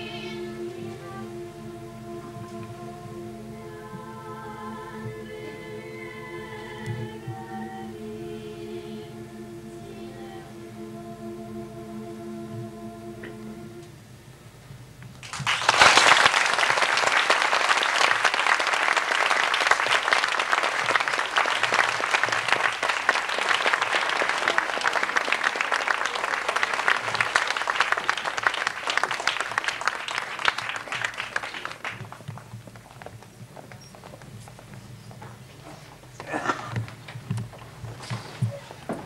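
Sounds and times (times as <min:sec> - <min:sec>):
boys' choir singing: 0:00.0 - 0:13.9
audience applause: 0:15.2 - 0:33.2.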